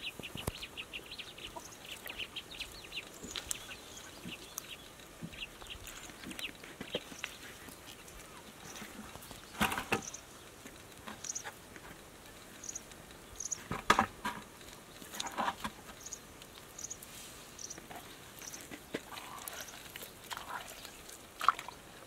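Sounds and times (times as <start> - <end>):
hands squelching in wet mud: 18.6 - 22.0.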